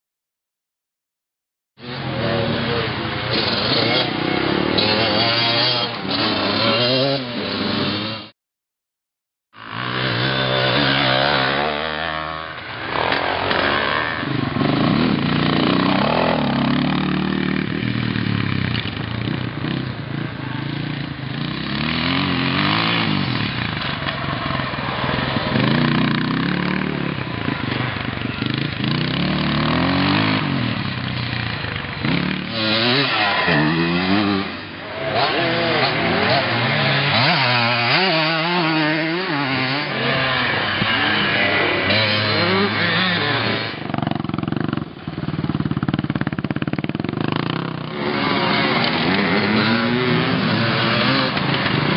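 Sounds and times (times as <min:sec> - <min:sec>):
two-stroke motorcycles revving: 0:01.8 - 0:08.3, 0:09.6 - 0:51.9.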